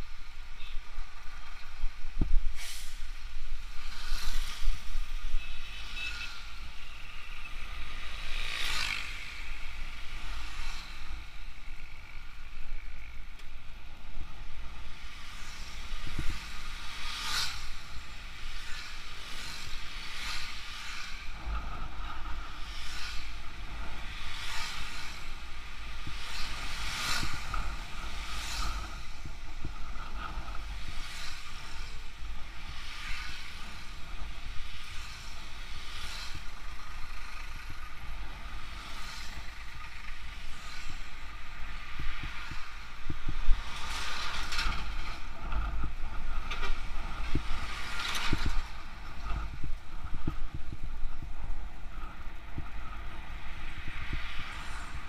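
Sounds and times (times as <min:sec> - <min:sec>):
wind rumble on microphone: 0:00.0 - 0:55.0
trucks rushing past: 0:03.9 - 0:13.2.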